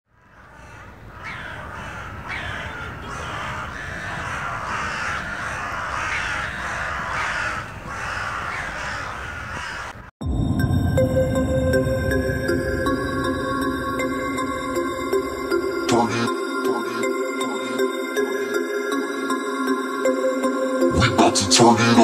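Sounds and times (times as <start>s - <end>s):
crows cawing: 0.1s - 10.1s, 12.8s - 21.2s
electronic music: 10.2s - 22.0s.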